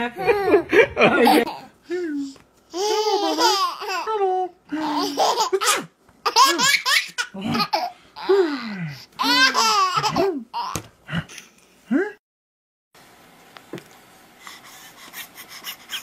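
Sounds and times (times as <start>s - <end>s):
baby laughing: 0.1s - 1.8s, 2.7s - 4.1s, 4.7s - 8.6s, 9.2s - 10.8s, 15.1s - 16.0s.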